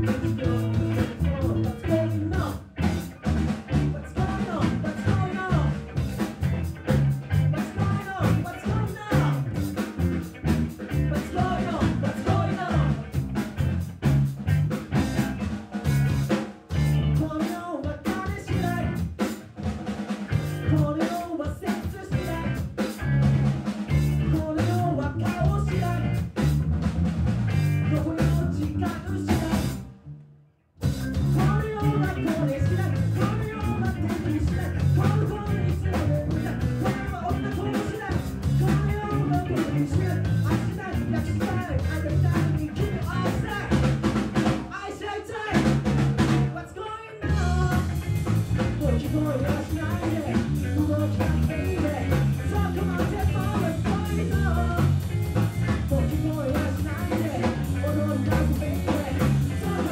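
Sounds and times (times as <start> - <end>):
man singing: 0.0 - 2.8, 3.8 - 5.9, 7.4 - 9.6, 10.9 - 13.2, 17.0 - 19.2, 20.6 - 23.0, 23.9 - 26.2, 27.8 - 29.8, 31.3 - 44.0, 44.7 - 55.0, 55.6 - 59.9
drum kit: 0.0 - 29.9, 30.8 - 46.6, 47.2 - 59.9
electric bass: 0.0 - 44.8, 45.5 - 59.9.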